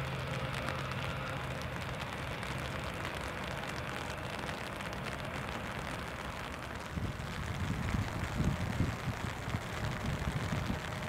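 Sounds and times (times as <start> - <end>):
raindrops ticking near microphone: 0.0 - 11.0
steady rain falling: 0.0 - 11.0.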